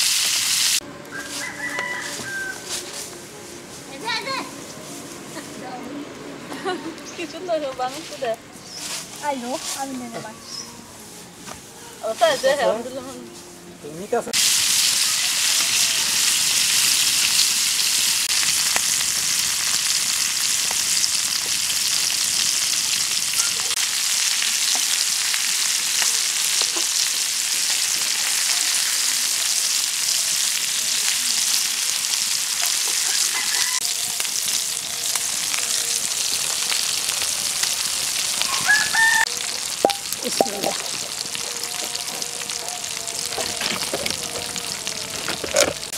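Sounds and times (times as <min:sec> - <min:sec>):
fish sizzling in oil: 0:00.0 - 0:00.8, 0:14.4 - 0:45.9.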